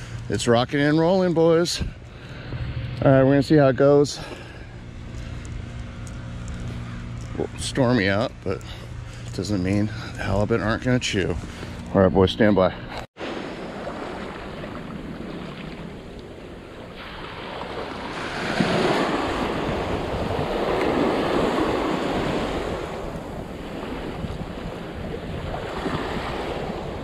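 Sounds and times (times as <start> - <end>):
ocean surf washing ashore: 13.2 - 27.0
wind buffeting microphone: 13.4 - 27.0.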